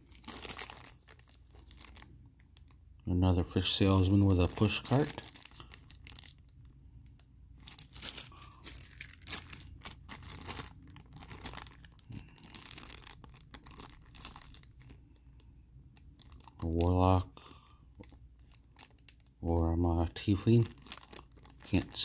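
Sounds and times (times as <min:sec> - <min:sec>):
plastic bags crinkling: 0:00.0 - 0:15.2, 0:16.0 - 0:22.0.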